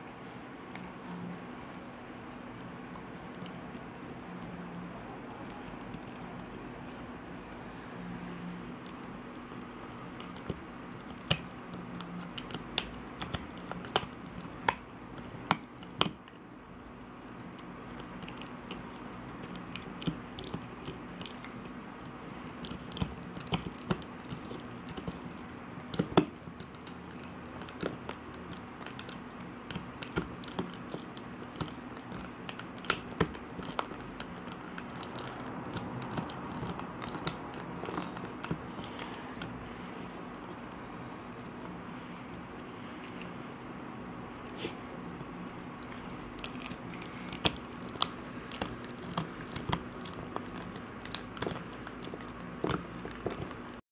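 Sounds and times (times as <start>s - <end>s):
dog gnawing a hard chew: 17.3s - 41.8s, 45.7s - 53.8s.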